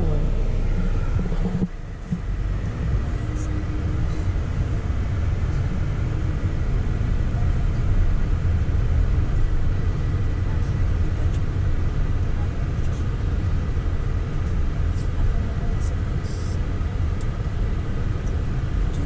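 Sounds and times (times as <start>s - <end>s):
car driving heard from inside: 0.0s - 19.0s.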